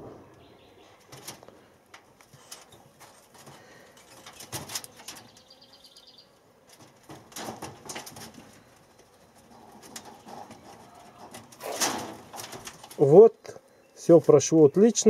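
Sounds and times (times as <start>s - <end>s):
rabbits scuffling on wire cage: 0.8s - 5.8s, 6.6s - 13.3s.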